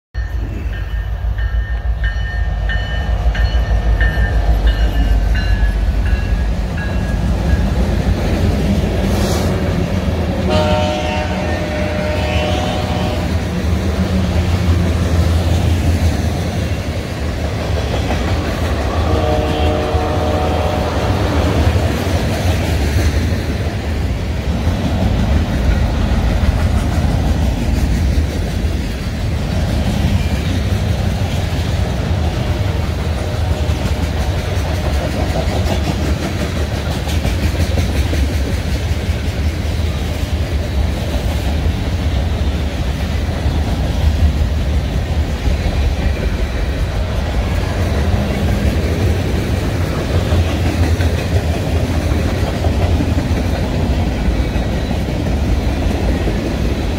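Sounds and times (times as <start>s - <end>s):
train wheels rumbling on rails: 0.2s - 56.9s
wheels clickety-clack: 14.4s - 19.6s, 21.1s - 56.9s.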